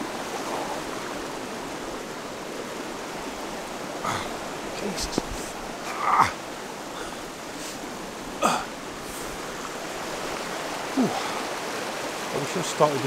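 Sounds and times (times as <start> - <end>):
river rushing: 0.0 - 13.0
man grunting with effort: 4.0 - 4.4, 5.8 - 6.4, 8.4 - 8.8, 10.9 - 11.4.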